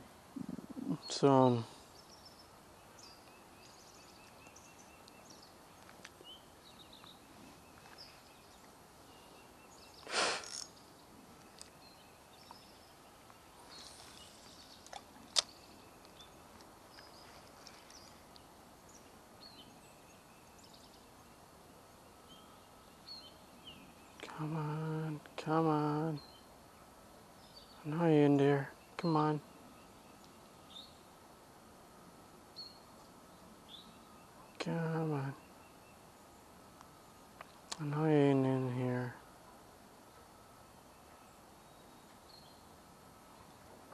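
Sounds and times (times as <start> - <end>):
faint bird chirps: 0.3 - 26.5.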